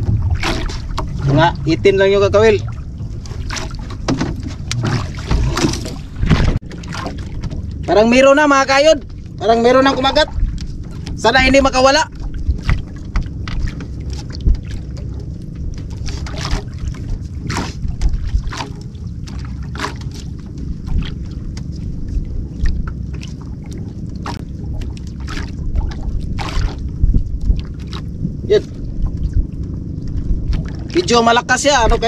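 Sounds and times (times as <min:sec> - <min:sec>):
water lapping at boat: 0:00.0 - 0:32.0
wind buffeting microphone: 0:00.0 - 0:32.0.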